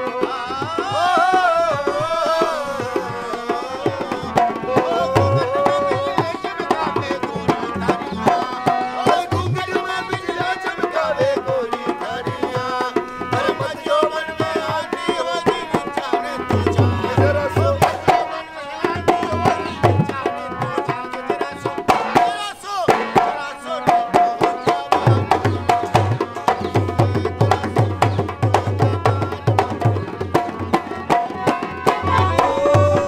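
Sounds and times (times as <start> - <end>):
harmonium melody: 0.0 - 33.0
barrel drum rhythm: 18.9 - 33.0.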